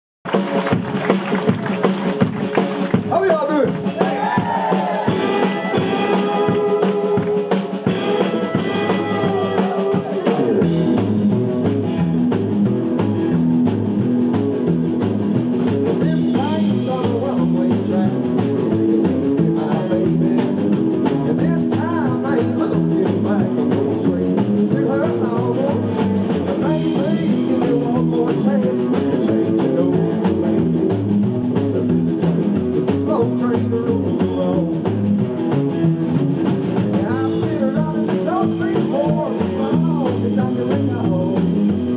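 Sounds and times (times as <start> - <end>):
rockabilly band playing: 0.2 - 41.9
upright bass line: 0.3 - 41.9
man singing: 5.3 - 11.1, 15.8 - 35.1, 36.9 - 41.9.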